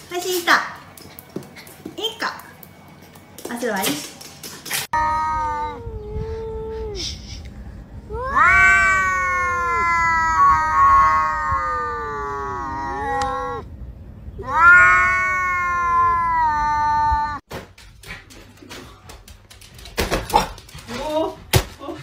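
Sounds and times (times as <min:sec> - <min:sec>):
cats yowling: 0:04.9 - 0:07.0, 0:08.1 - 0:13.7, 0:14.4 - 0:17.4.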